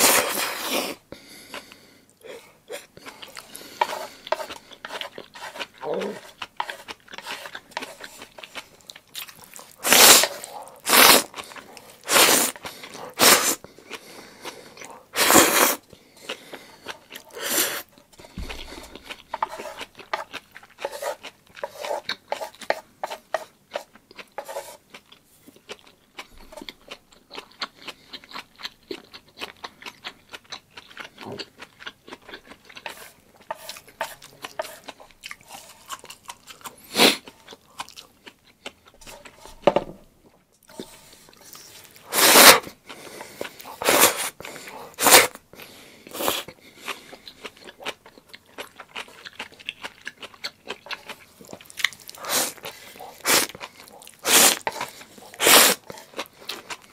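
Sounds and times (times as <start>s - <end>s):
person slurping noodles: 0.0s - 8.4s, 9.6s - 23.2s, 40.7s - 45.4s, 46.0s - 46.5s, 52.1s - 56.3s
wet chewing: 1.2s - 39.6s, 40.2s - 56.9s.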